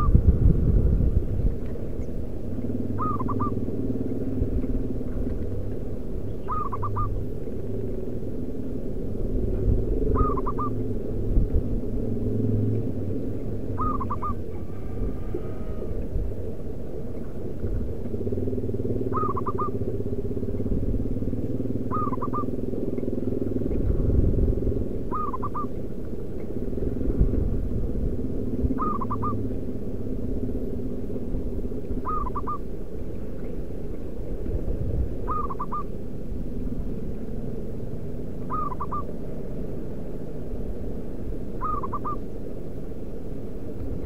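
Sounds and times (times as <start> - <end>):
dove cooing: 0.0 - 0.3, 1.7 - 11.3, 12.8 - 26.3, 28.3 - 29.7, 31.0 - 34.5, 35.1 - 36.1, 36.7 - 39.2, 41.5 - 42.3
loud low rumble: 0.0 - 44.0.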